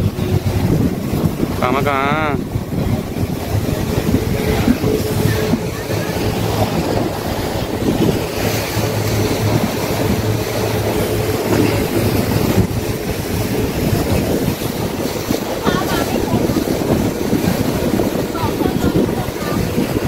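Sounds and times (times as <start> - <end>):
speedboat engine humming: 0.0 - 20.0
water rushing along hull: 0.0 - 20.0
wind buffeting microphone: 0.0 - 20.0.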